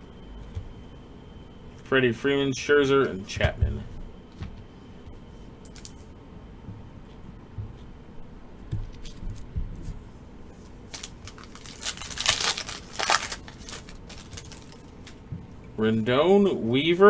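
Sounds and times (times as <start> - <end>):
soft handling bumps: 3.3 - 4.7
foil wrapper crinkling: 10.6 - 15.2.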